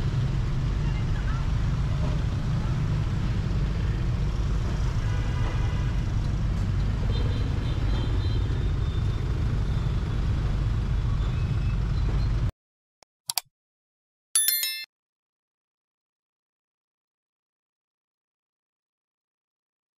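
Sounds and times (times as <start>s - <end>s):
road traffic rumble: 0.0s - 12.5s
brief ding: 14.4s - 14.9s.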